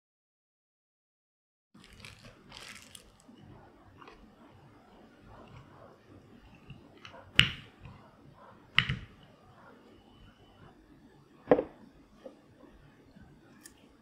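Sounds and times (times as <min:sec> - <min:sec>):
rolling pin knocking on wooden board: 0:06.7 - 0:08.0, 0:08.7 - 0:09.3, 0:11.5 - 0:12.4.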